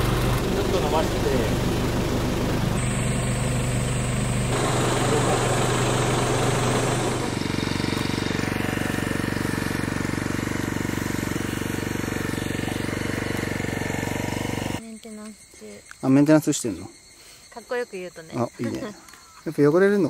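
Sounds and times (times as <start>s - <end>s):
truck engine idling: 0.0s - 14.8s.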